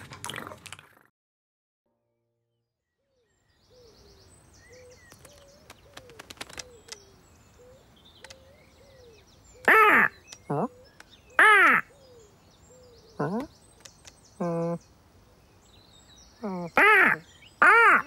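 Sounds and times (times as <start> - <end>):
small birds chirping: 3.0 - 18.0
pigeon cooing: 4.8 - 13.5.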